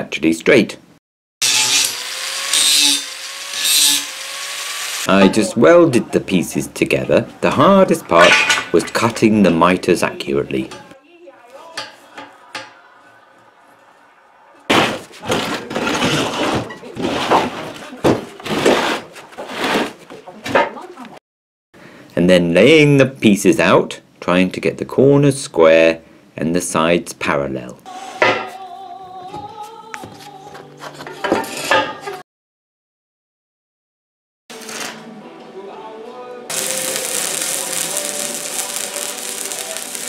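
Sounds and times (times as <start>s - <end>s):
steel scraping across workbench: 1.4s - 5.1s, 15.4s - 17.7s
slow music with held notes: 34.5s - 40.0s.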